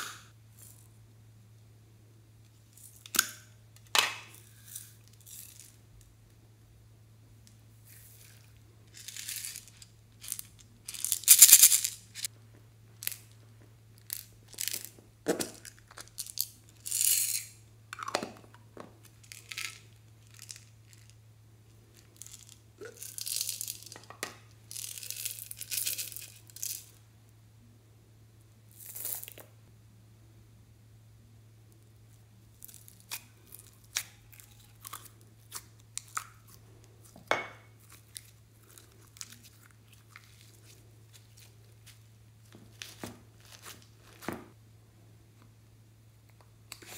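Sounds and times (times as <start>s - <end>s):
glitter and beads rustling and crackling: 7.9s - 12.3s, 24.7s - 26.9s.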